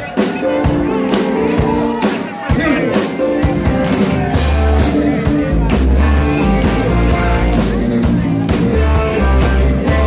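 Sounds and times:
drums steady beat: 0:00.0 - 0:10.0
keyboards: 0:00.0 - 0:10.0
electric guitar: 0:03.0 - 0:10.0
electric bass: 0:03.7 - 0:10.0.

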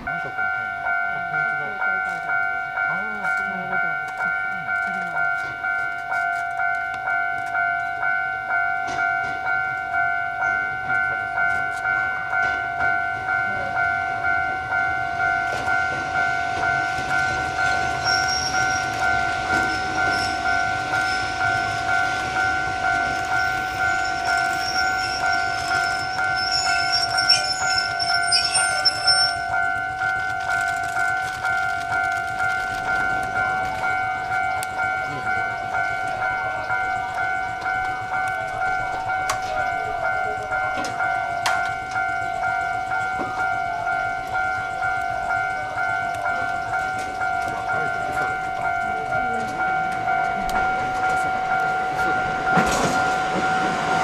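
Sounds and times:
level crossing warning bell: 0:00.0 - 0:54.0
rail clacks: 0:00.0 - 0:54.0
high wheel squeal: 0:15.3 - 0:29.8.

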